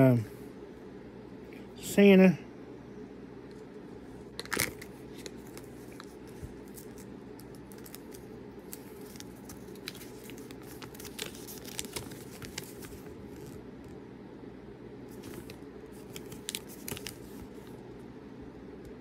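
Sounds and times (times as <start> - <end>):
paper crinkling: 4.2 - 13.6, 15.1 - 17.8.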